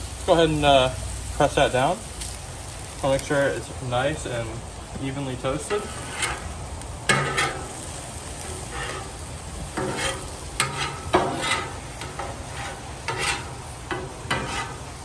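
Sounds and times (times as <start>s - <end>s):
meat and onions sizzling on griddle: 0.0s - 15.0s
metal spatula scraping griddle: 5.1s - 15.0s.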